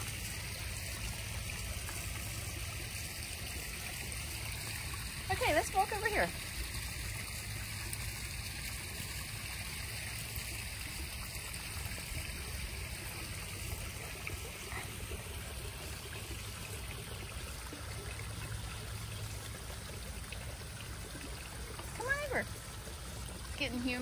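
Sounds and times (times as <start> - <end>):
water running and trickling: 0.0 - 24.0.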